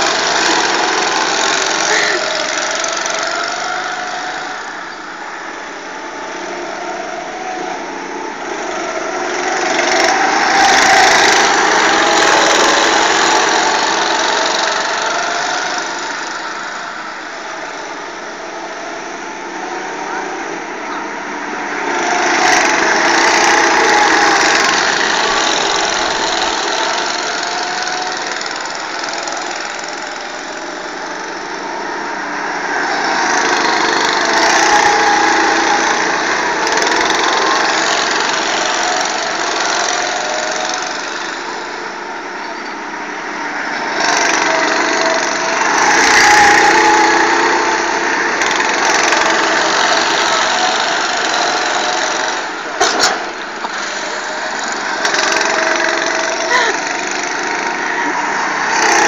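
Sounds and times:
go-kart engines buzzing: 0:00.0 - 0:59.0.

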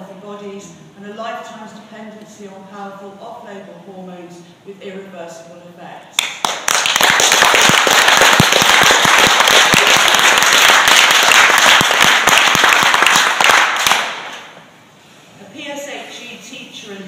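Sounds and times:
audience applauding: 0:06.2 - 0:14.3.

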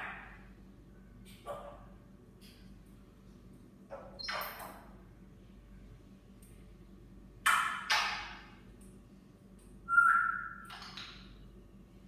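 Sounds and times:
parrot whistling: 0:09.9 - 0:10.8.

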